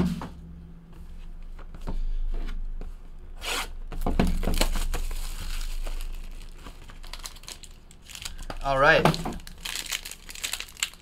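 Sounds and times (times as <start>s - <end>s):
plastic shrink-wrap tearing: 4.3s - 11.0s.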